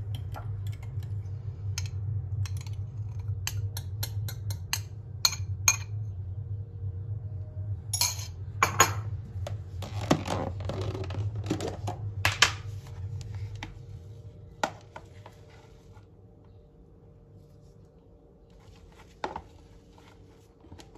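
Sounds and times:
steady low hum: 0.0 - 20.9
rustling and scraping: 9.4 - 16.5, 17.3 - 20.9.

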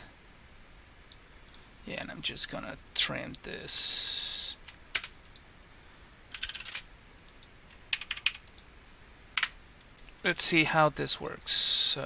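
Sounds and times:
computer keyboard typing: 4.9 - 5.4, 6.3 - 6.8, 7.9 - 8.6.

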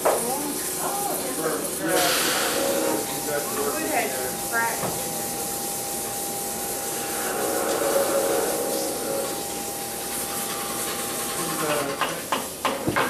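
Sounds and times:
workshop machine hiss: 0.0 - 13.0
high machine whine: 1.8 - 11.8.

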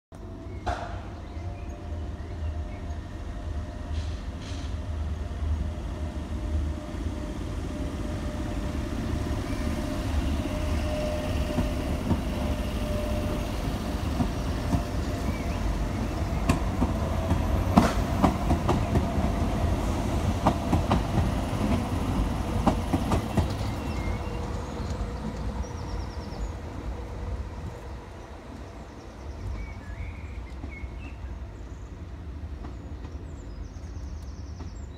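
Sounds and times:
train rumble and hum: 0.2 - 34.9.

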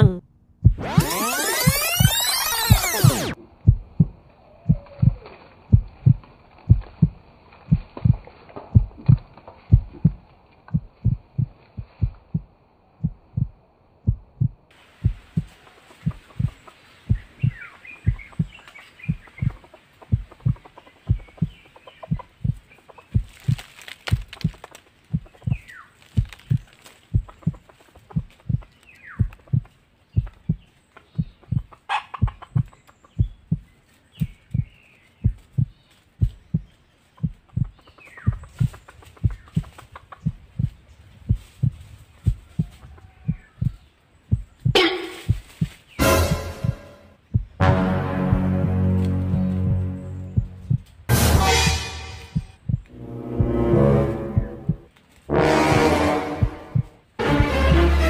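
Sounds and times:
heartbeat double thump: 0.0 - 22.6, 25.1 - 27.6, 28.2 - 28.6, 29.2 - 30.6, 31.2 - 37.7, 38.3 - 42.7, 43.3 - 54.9, 55.6 - 58.0
faint high calls: 0.8 - 3.4
faint bird calls: 4.4 - 5.5.

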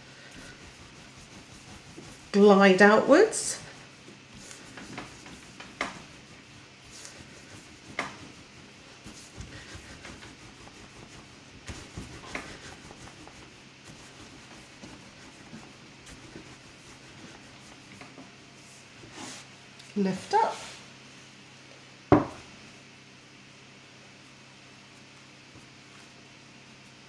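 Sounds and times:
rolling pin rubbing on dough: 0.0 - 19.6.

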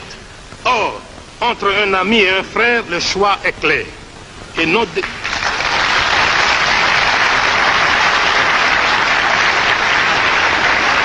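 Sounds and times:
crowd applauding: 5.0 - 11.0.

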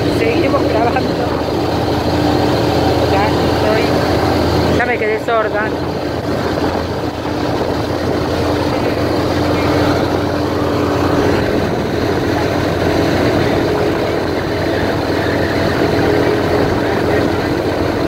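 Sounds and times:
airboat engine drone: 0.0 - 18.0.

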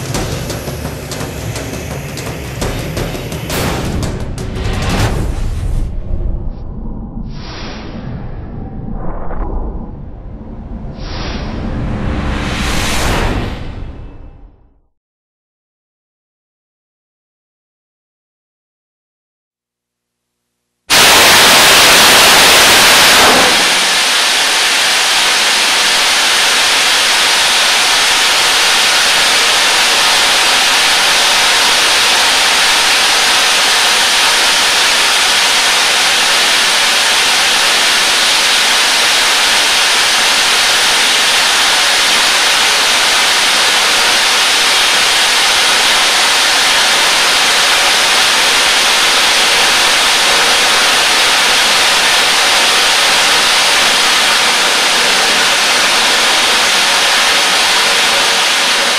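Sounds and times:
rocket motor rushing hiss: 0.0 - 5.6, 20.9 - 58.9.

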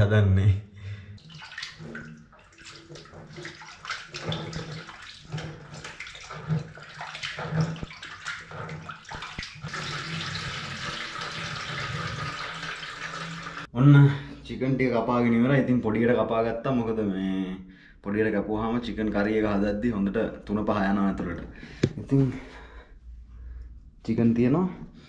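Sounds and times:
tap water stream: 1.2 - 13.7
water splashing in a bowl: 1.2 - 13.7.

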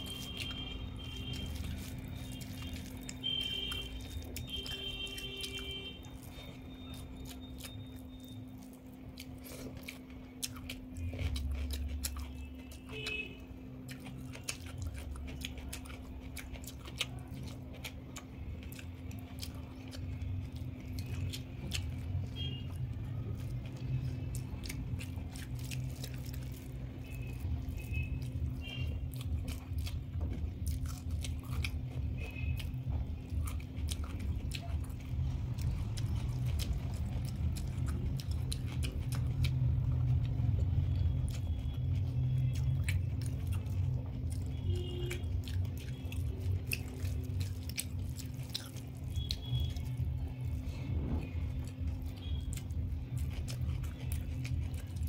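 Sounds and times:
crunch: 0.0 - 13.2, 13.8 - 55.0
chewing and biting: 0.0 - 55.0.

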